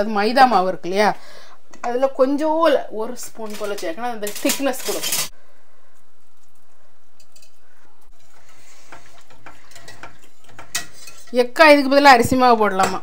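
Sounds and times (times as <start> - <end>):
gravy simmering hiss: 6.0 - 11.4.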